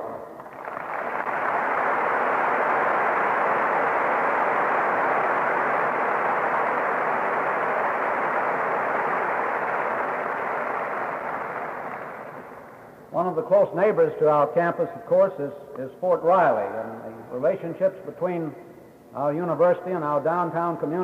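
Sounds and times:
muffled audience applauding: 0.0s - 13.4s.

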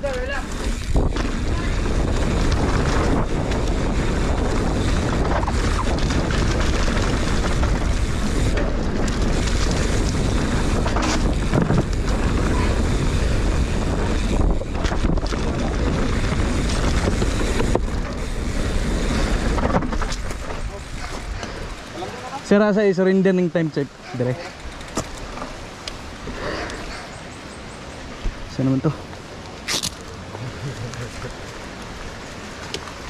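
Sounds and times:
wind rushing over microphone: 0.0s - 22.0s
bike knocks and rattles: 0.0s - 22.3s, 24.1s - 25.6s.

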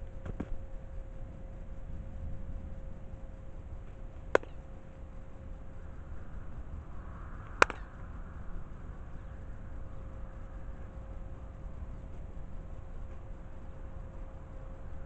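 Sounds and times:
low rumble: 0.0s - 15.0s
hand strike cracks: 4.4s - 4.6s, 7.6s - 7.9s.

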